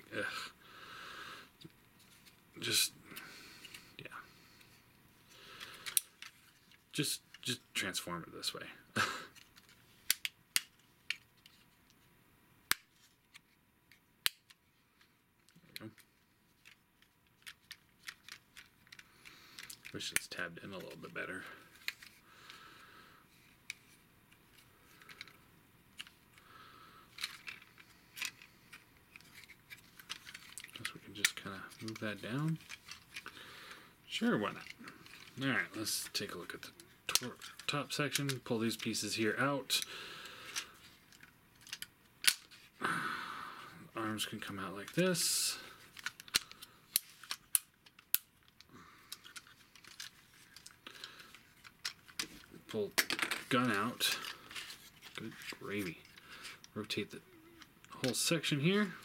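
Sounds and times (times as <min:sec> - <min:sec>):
plastic pieces clicking into place: 0:05.6 - 0:07.5, 0:09.4 - 0:11.7, 0:15.4 - 0:20.9, 0:24.5 - 0:25.4, 0:26.0 - 0:26.4, 0:27.1 - 0:33.4, 0:36.2 - 0:39.0, 0:39.8 - 0:42.7, 0:45.8 - 0:57.0
handling rustle: 0:27.1 - 0:33.4, 0:34.1 - 0:42.8, 0:44.0 - 0:59.0.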